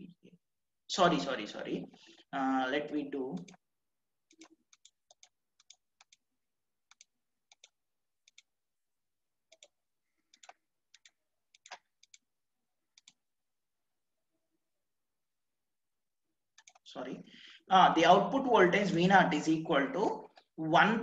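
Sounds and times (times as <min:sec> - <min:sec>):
computer mouse clicking: 0:03.3 - 0:03.6, 0:04.3 - 0:06.2, 0:06.9 - 0:08.5, 0:09.5 - 0:12.3, 0:12.9 - 0:13.2, 0:16.5 - 0:16.9.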